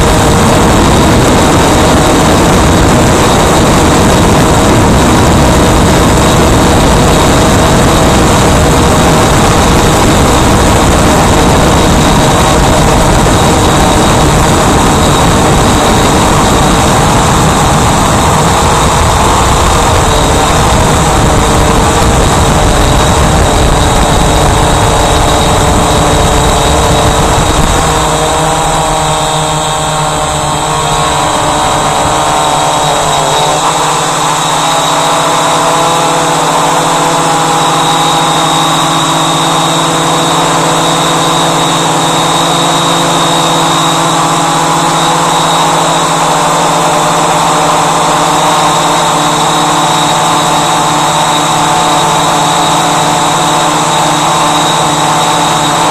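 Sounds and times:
drone motors whining: 0.0s - 55.9s
wind rumbling on microphone: 0.0s - 55.9s.

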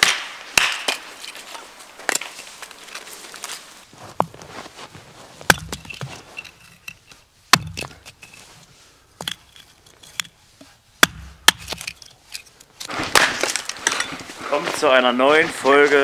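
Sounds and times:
hatchet chopping wood: 0.0s - 1.0s, 5.5s - 6.1s, 7.5s - 8.2s, 11.0s - 12.0s.

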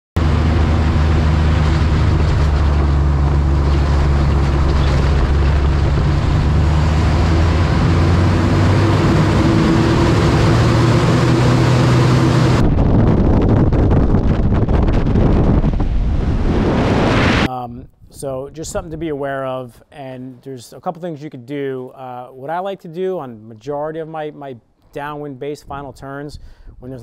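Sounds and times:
airflow rushing: 0.2s - 17.5s
airplane engine and propeller droning: 0.2s - 17.5s
wind buffeting microphone: 0.2s - 17.5s.

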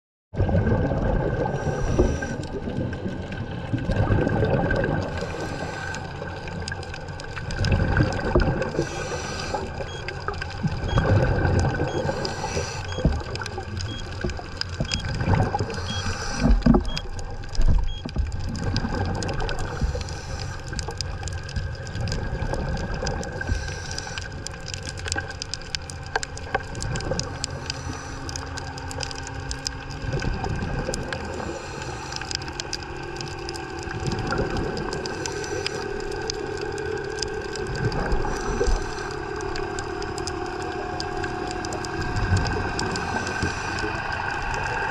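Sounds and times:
low underwater rumble: 0.4s - 44.9s
underwater bubbles gurgling: 0.4s - 44.9s
faint steady whine: 8.3s - 18.4s.

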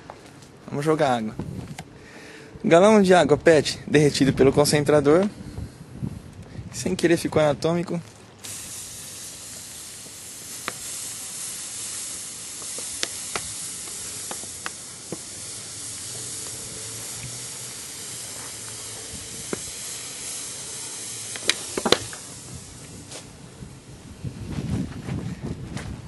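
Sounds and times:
sharp crackles: 7.8s - 24.2s
water sizzling on hot concrete: 7.9s - 24.3s.

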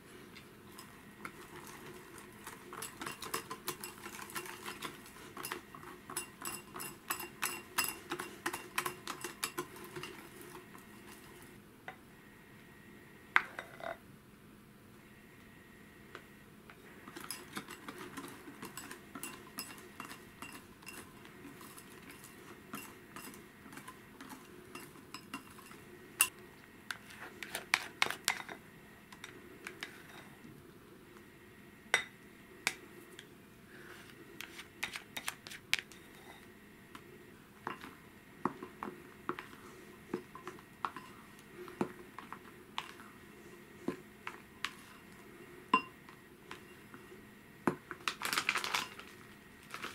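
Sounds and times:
whisk and spatula clinking on glass: 2.4s - 10.5s, 17.1s - 26.3s.

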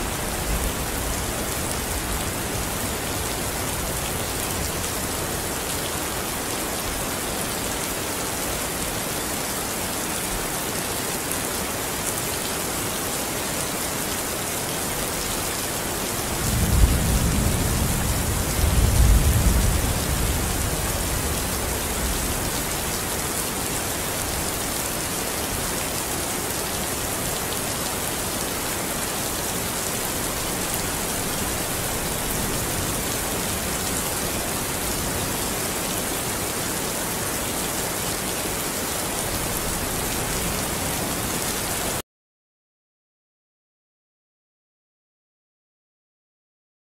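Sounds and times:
steady rain: 0.0s - 42.0s
thunder rumble: 16.4s - 22.2s.

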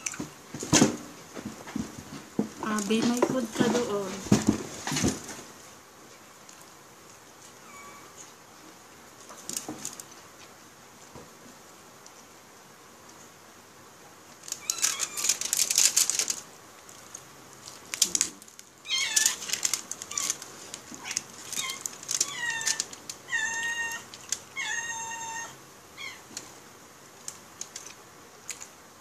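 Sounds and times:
crackly rustling: 0.0s - 29.0s
cat meowing: 21.0s - 26.3s.

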